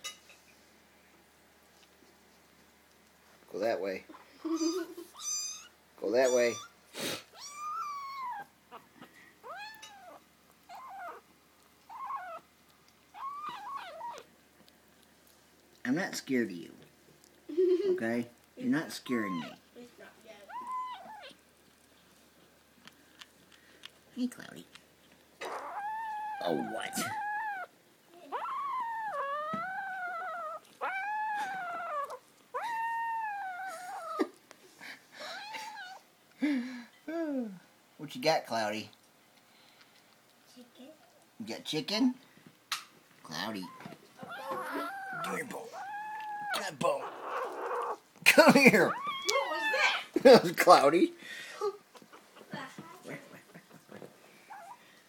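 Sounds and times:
kitten growling meows: 7.3 - 11.2, 11.9 - 12.4, 13.1 - 14.3, 19.3 - 19.6, 20.5 - 21.4, 25.4 - 34.4, 35.3 - 36.0, 43.6 - 48.0, 48.9 - 50.1.

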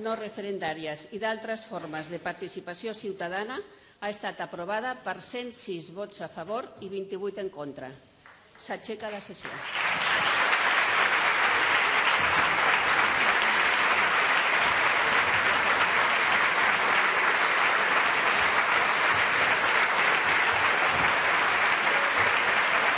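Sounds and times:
crowd applause: 9.6 - 22.9.

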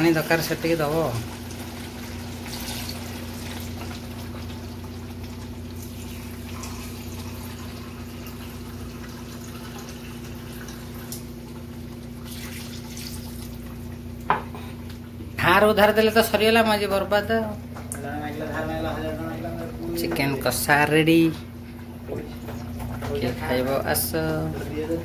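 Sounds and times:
water pouring into a pot: 0.1 - 14.0.

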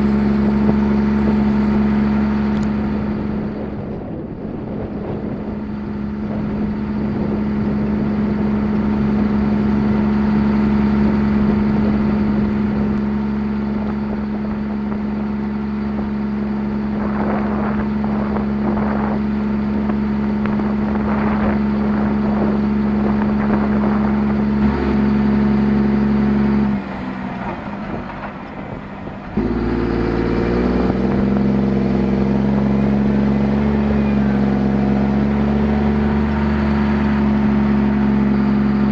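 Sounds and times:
tractor diesel engine running: 0.0 - 38.9.

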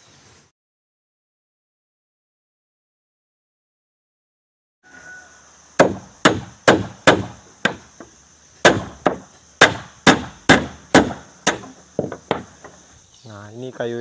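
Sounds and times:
hammer striking wooden planks: 5.8 - 12.8.

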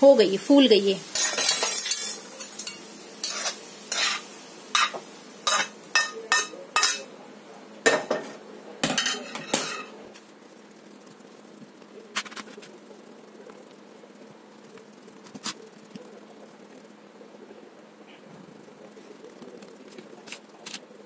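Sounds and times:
spoon scraping a pan: 1.0 - 7.1, 7.9 - 10.0.

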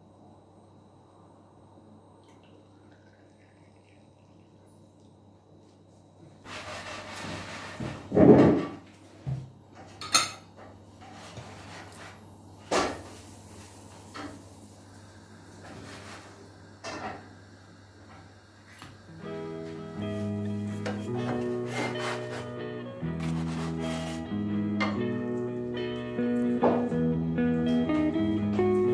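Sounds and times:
plates set down: 7.2 - 10.5, 26.6 - 26.9.

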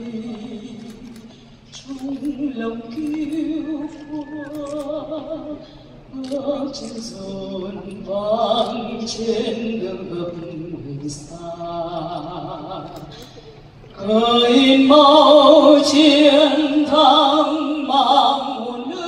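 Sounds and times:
woman singing with vibrato: 0.0 - 13.2, 13.9 - 19.0.

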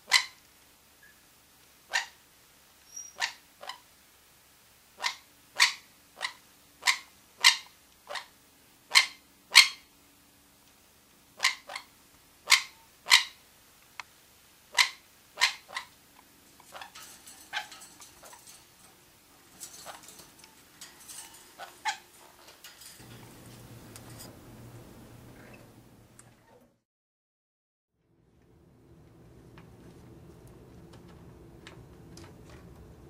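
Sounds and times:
parrots chattering softly: 0.0 - 0.4, 1.9 - 2.2, 2.8 - 3.9, 5.0 - 9.9, 11.4 - 13.4, 14.7 - 24.4
parrots giving sharp calls: 0.0 - 0.4, 1.9 - 2.2, 2.9 - 3.8, 5.0 - 8.3, 8.9 - 9.9, 11.4 - 13.4, 14.7 - 23.0.

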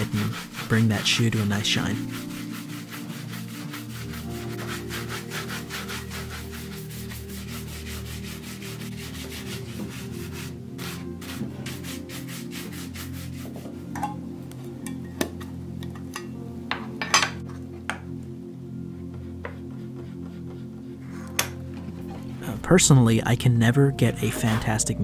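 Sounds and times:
brush strokes on leather shoe: 0.0 - 13.8
soft background music: 0.0 - 25.0.

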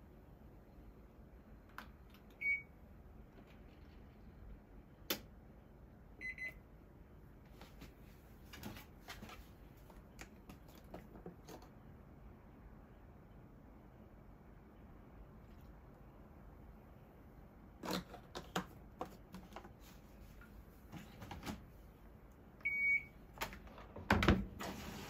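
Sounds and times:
control panel beeps: 6.2 - 6.6, 22.6 - 23.1.

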